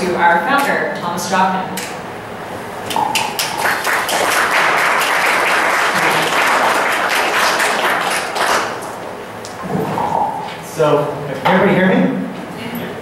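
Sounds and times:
applause: 0:03.2 - 0:08.9.

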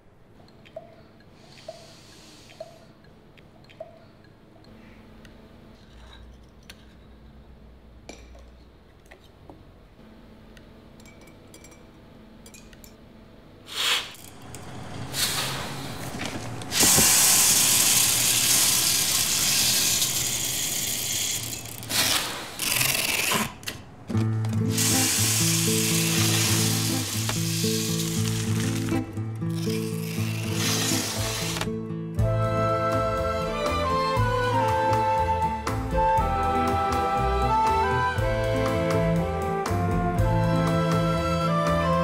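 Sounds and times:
spoons clinking against glass: 0:11.0 - 0:13.0
packing machine running: 0:14.2 - 0:29.0
coffee beans pouring: 0:16.7 - 0:23.5, 0:24.7 - 0:31.6
music with low held notes: 0:31.4 - 0:42.0.

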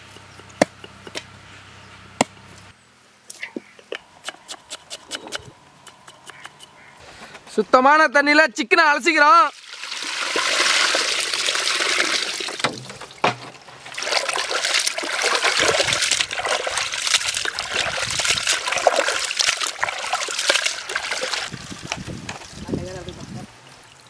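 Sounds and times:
water splashing and sloshing: 0:09.5 - 0:24.0.

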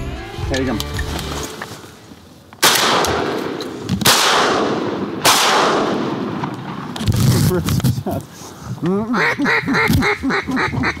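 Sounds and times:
shotgun shots echoing: 0:02.6 - 0:06.9.

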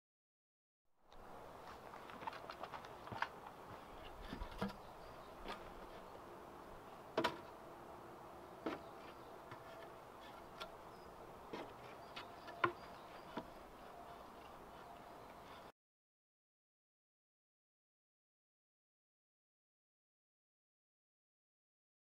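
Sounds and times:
wooden log knocks and thuds: 0:07.2 - 0:07.5, 0:08.6 - 0:08.9, 0:11.5 - 0:13.6.

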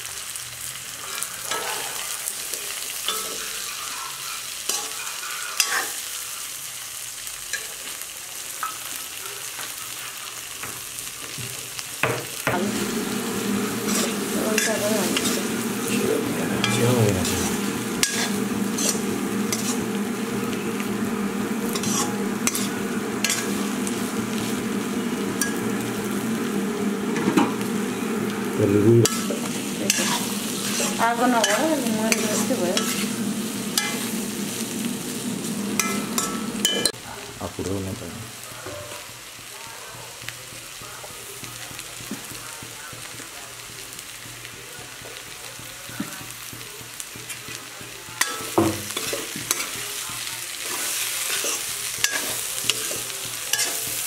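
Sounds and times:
food sizzling in a wok: 0:00.0 - 0:54.0
low hum: 0:12.6 - 0:36.9
steel spoon scraping and clinking: 0:13.4 - 0:16.0, 0:16.6 - 0:28.1, 0:29.0 - 0:34.7, 0:35.4 - 0:37.0, 0:50.7 - 0:54.0.

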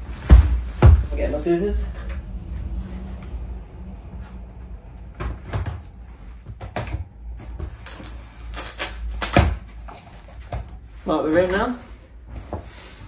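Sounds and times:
scissors cutting packing tape: 0:07.8 - 0:09.6.

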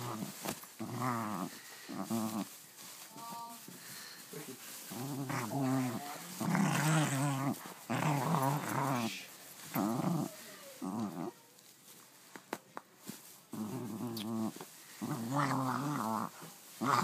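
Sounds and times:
dog play-growling: 0:00.0 - 0:02.9, 0:04.7 - 0:11.4, 0:13.5 - 0:17.0.

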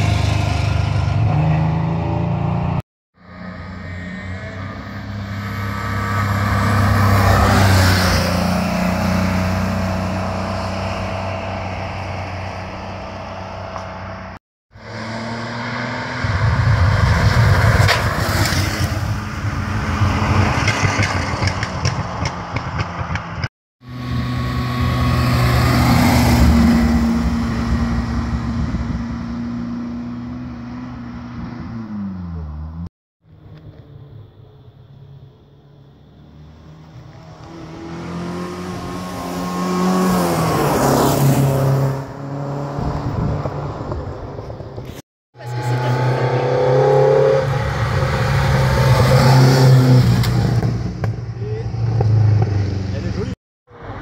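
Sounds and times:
rally cars passing: 0:00.0 - 0:34.6, 0:35.7 - 0:54.0.

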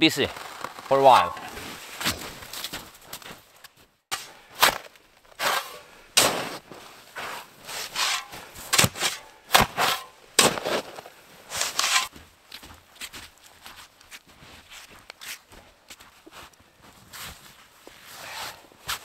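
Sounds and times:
snow shovel crunching scrape: 0:00.0 - 0:03.4, 0:04.1 - 0:12.2, 0:17.0 - 0:19.0.

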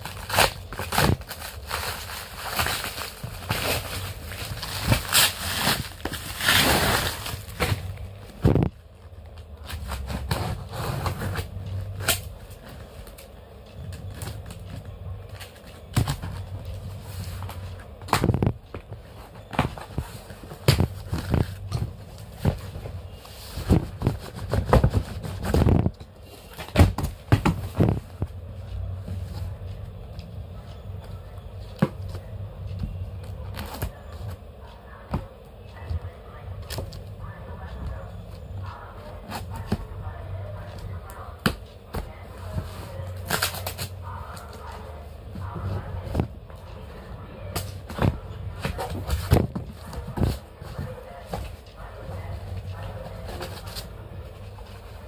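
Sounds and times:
steady low hum: 0:00.0 - 0:55.0
cardboard box scraping and rustling: 0:09.7 - 0:11.6.

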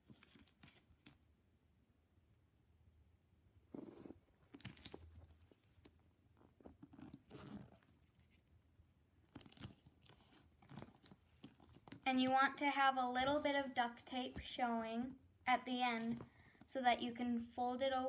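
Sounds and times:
duct tape rustling: 0:09.3 - 0:12.1.

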